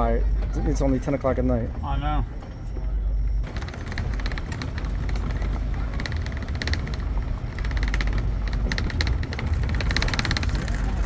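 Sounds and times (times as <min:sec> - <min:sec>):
vehicle driving slowly: 0:00.0 - 0:11.0
crackling and clicking: 0:03.2 - 0:11.0.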